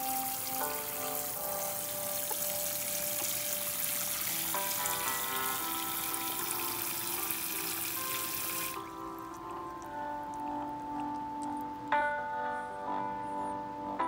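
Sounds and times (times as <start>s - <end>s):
water spraying from sink sprayer: 0.0s - 8.9s
soft background music: 0.0s - 14.0s.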